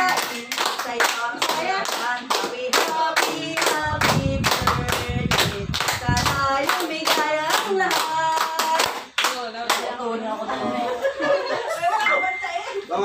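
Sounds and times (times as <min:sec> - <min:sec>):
people clapping in time: 0:00.0 - 0:09.9
voices singing: 0:00.0 - 0:13.0.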